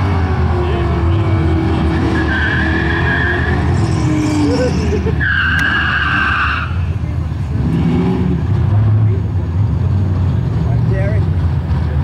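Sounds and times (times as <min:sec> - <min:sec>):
tyres squealing: 0:00.0 - 0:07.1
car engine running loud: 0:00.0 - 0:12.0.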